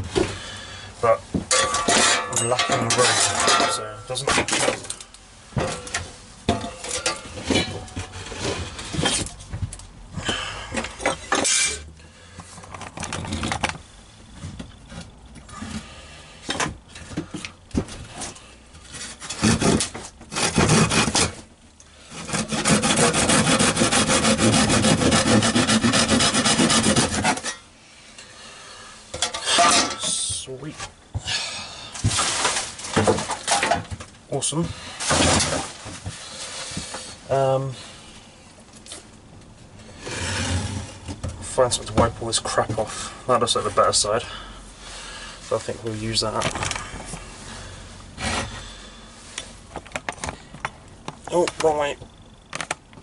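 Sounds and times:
hand saw cutting wood: 0:19.2 - 0:21.5, 0:22.1 - 0:27.6.

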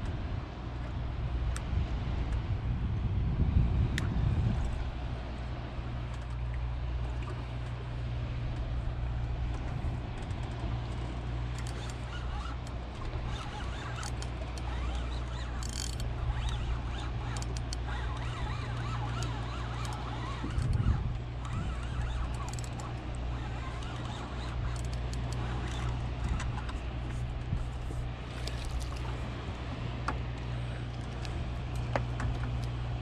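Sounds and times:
water noise: 0:00.0 - 0:33.0
outboard motor idling: 0:04.4 - 0:33.0.

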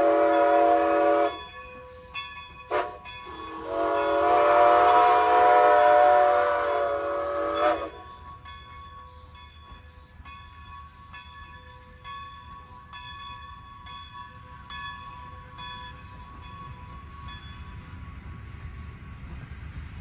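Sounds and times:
steam locomotive whistle: 0:00.0 - 0:08.3
faint bell ringing: 0:01.2 - 0:04.2, 0:07.6 - 0:18.0.

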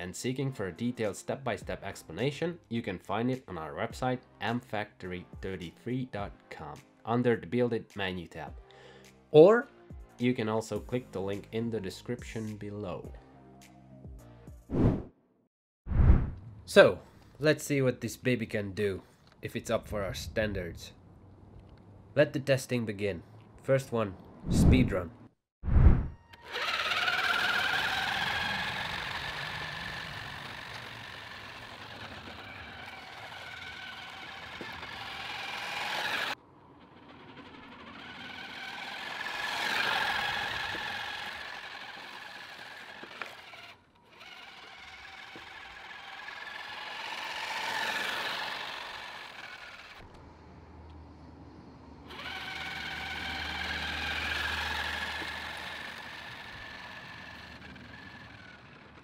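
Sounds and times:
rc car motor whine: 0:26.2 - 0:50.2, 0:52.0 - 0:59.0.

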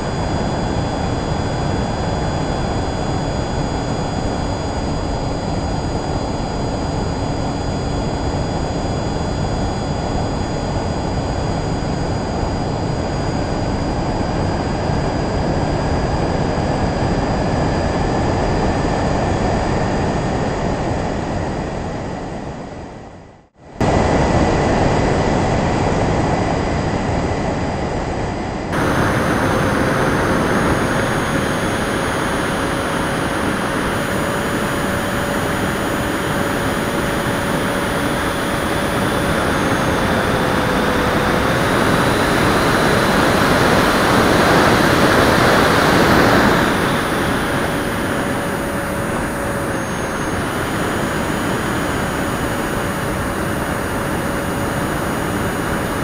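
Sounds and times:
electric fan whining: 0:00.0 - 0:56.0
rush of air: 0:28.8 - 0:56.0.

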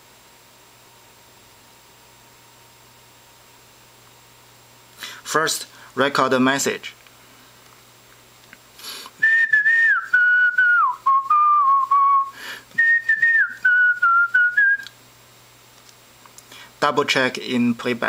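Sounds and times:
quick breath: 0:05.0 - 0:06.0, 0:08.8 - 0:09.2, 0:12.3 - 0:12.7
person whistling a tune: 0:09.2 - 0:14.9.

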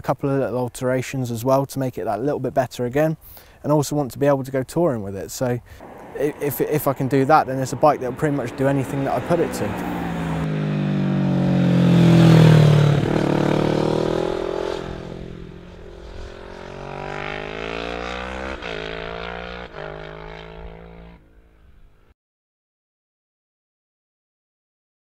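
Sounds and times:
motorcycle engine passing: 0:05.8 - 0:22.1.

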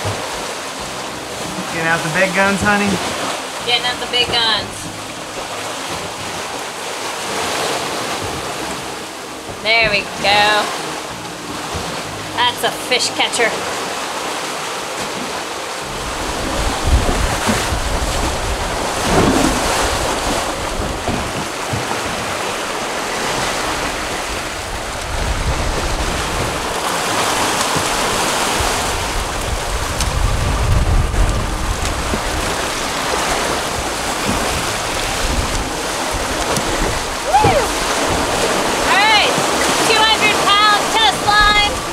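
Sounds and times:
water rushing past boat: 0:00.0 - 0:41.9
wind buffeting microphone: 0:15.8 - 0:41.9.

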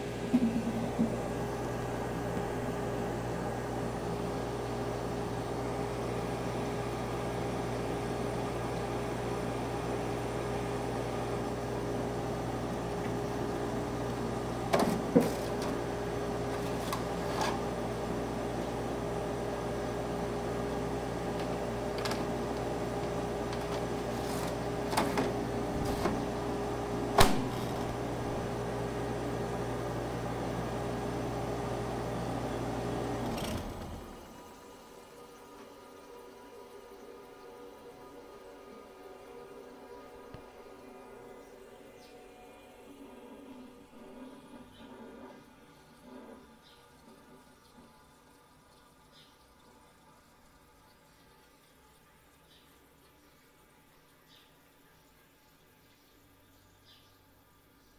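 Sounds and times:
air conditioner humming: 0:00.0 - 0:46.0
knob switching off: 0:27.1 - 0:28.4.

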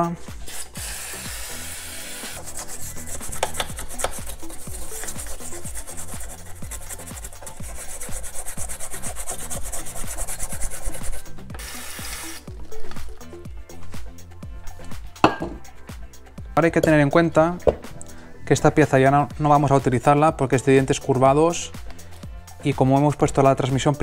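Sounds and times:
background music with steady beat: 0:00.0 - 0:24.0
rapid rubbing strokes: 0:00.2 - 0:13.2.

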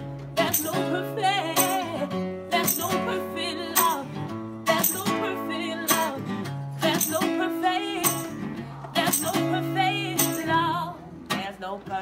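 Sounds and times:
acoustic guitar strumming: 0:00.0 - 0:12.0
person singing: 0:00.4 - 0:12.0.

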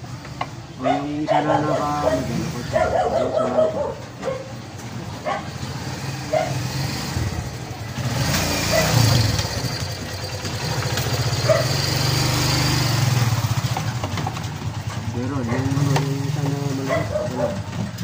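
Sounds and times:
dog barking: 0:00.8 - 0:04.6, 0:05.2 - 0:05.6, 0:06.2 - 0:06.7, 0:08.6 - 0:09.2, 0:11.4 - 0:11.9, 0:15.4 - 0:16.0, 0:16.7 - 0:17.8
motorcycle engine running: 0:01.7 - 0:18.0.

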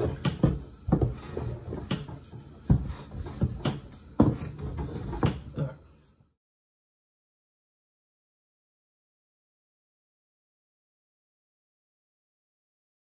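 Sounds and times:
rolling pin knocking on dough: 0:00.0 - 0:05.5.

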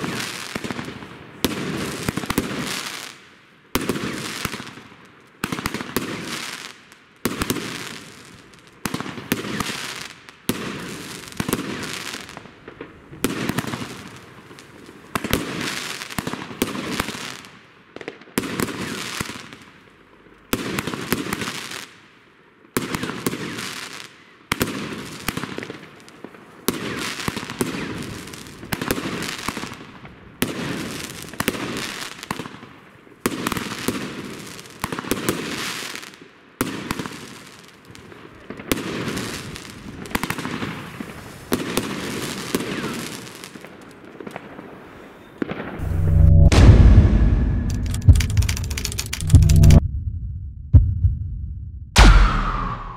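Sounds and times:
fireworks bangs with crackle: 0:00.0 - 0:03.2, 0:03.8 - 0:19.7, 0:20.5 - 0:22.0, 0:22.8 - 0:45.9, 0:52.0 - 0:52.9.

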